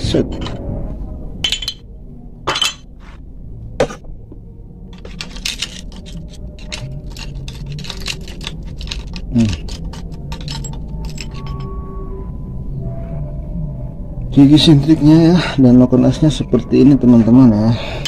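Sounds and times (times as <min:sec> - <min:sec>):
screwdriver clinking on metal: 0:01.4 - 0:01.8, 0:05.0 - 0:11.7.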